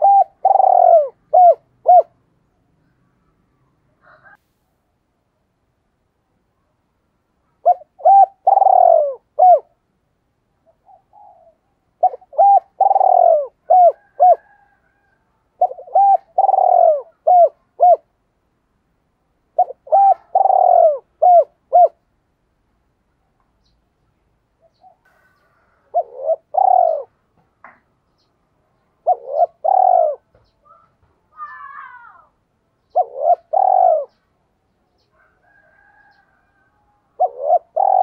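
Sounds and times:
dove cooing: 0.0 - 2.2, 7.6 - 9.8, 10.6 - 18.2, 19.5 - 22.0, 24.6 - 27.2, 28.8 - 32.2, 32.8 - 34.3, 34.9 - 38.0.

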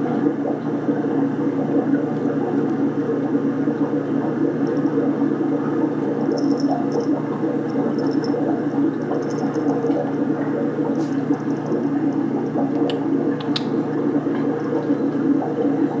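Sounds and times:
faint clicks: 12.7 - 13.8.

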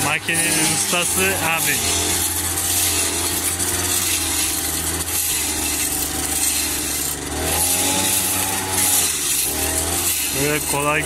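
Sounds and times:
brush cutter chopping grass: 0.0 - 11.0.

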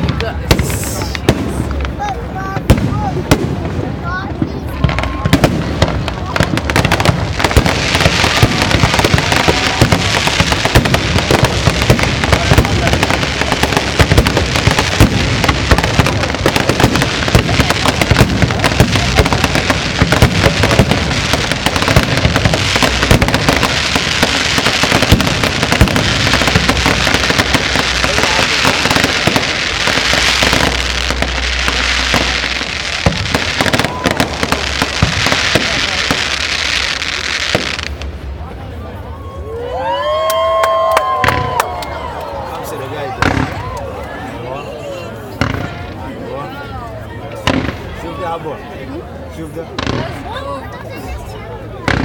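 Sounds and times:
fireworks bangs and crackles: 0.0 - 52.0
hissing crackle: 5.0 - 38.2.

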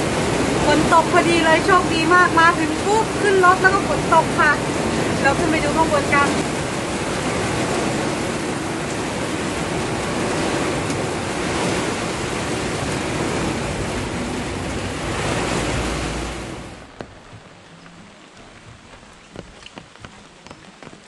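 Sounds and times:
heavy rain on vehicle: 0.0 - 17.7.

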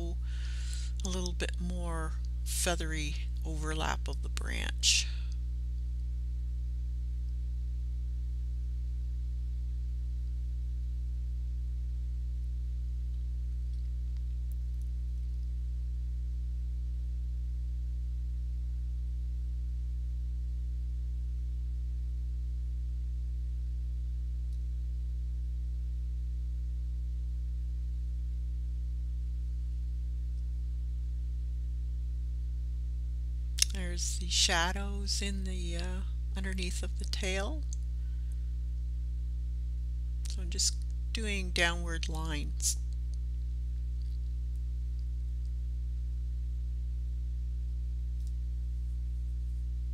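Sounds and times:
low electrical hum: 0.0 - 49.9.

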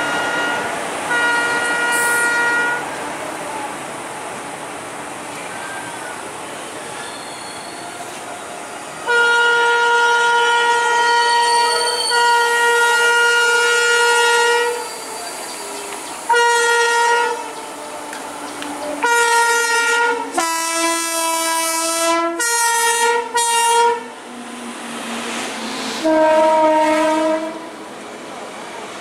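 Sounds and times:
locomotive air horn blasts: 0.0 - 2.9, 9.0 - 15.4, 16.3 - 17.6, 19.0 - 24.2, 26.0 - 27.7
train rumble: 0.0 - 29.0.

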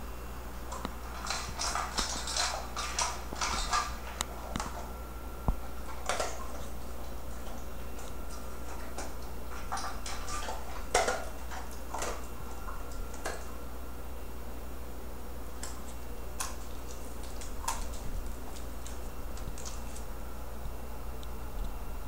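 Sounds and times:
faint low hum: 0.0 - 22.0
dog claws clicking on tiled floor: 0.7 - 4.9, 5.5 - 13.5, 15.6 - 20.1.

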